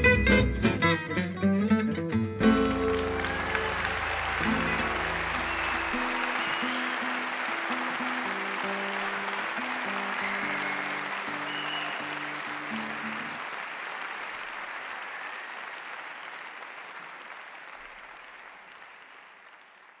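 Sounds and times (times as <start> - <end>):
jazz guitar tune: 0.0 - 6.2
audience applauding: 2.4 - 20.0.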